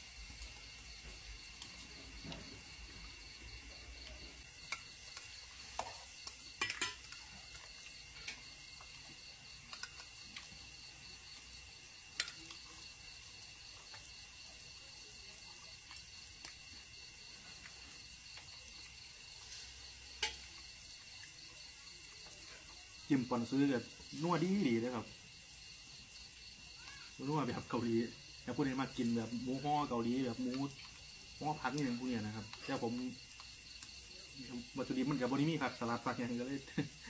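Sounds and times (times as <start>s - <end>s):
high insect trill: 0.0s - 37.0s
meat sizzling on grill: 0.0s - 37.0s
chopsticks clicking on bowls and pans: 5.8s - 7.4s, 9.7s - 10.5s, 12.2s - 12.6s, 20.2s - 20.5s.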